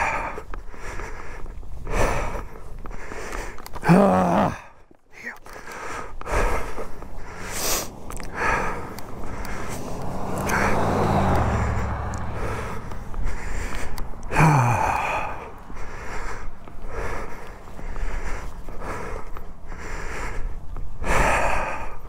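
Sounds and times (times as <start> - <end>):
man breathing hard and gasping: 0.0 - 22.0
man groaning: 3.8 - 4.8, 14.3 - 15.5
low drone: 6.2 - 17.3.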